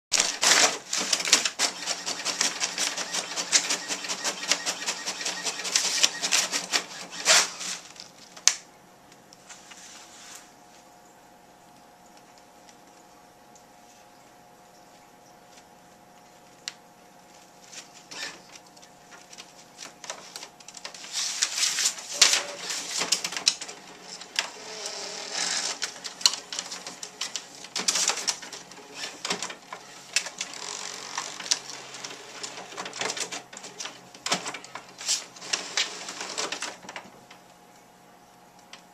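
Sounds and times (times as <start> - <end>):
paper rustling and crinkling: 0.2 - 8.4, 17.2 - 24.6.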